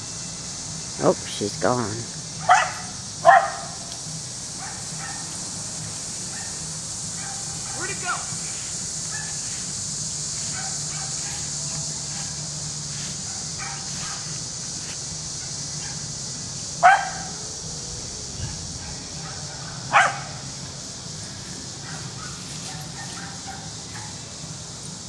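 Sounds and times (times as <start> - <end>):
steady high-pitched hiss: 0.0 - 25.0
dog barking: 2.4 - 3.8, 4.6 - 5.3, 6.3 - 6.6, 7.2 - 8.0, 9.1 - 9.4, 10.5 - 11.5, 13.3 - 14.3, 16.8 - 17.4, 18.4 - 20.4, 21.8 - 24.2.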